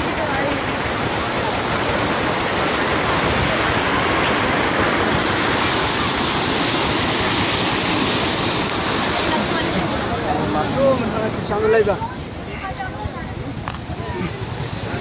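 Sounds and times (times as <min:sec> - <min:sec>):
floodwater rushing: 0:00.0 - 0:15.0.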